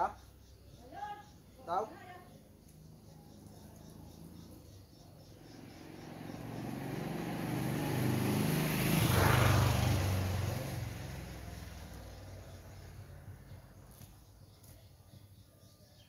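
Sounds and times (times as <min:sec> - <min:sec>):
vehicle driving past: 0:02.5 - 0:13.9.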